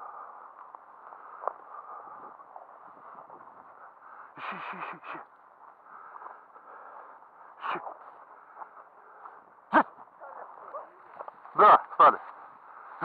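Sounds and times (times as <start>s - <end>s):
footsteps through dry brush: 7.9s - 13.0s.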